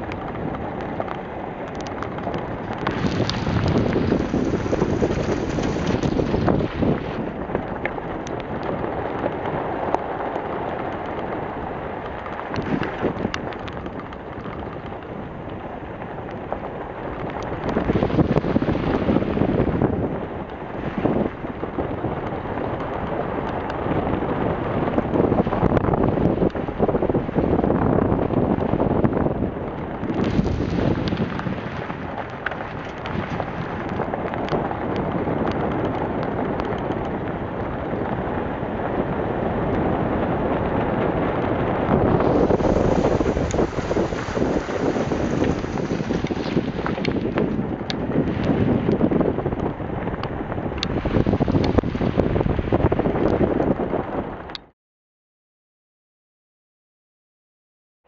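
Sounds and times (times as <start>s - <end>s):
vehicle driving on gravel: 0.0s - 54.6s
wind buffeting microphone: 0.0s - 54.7s
tyres crunching over gravel: 42.0s - 48.3s.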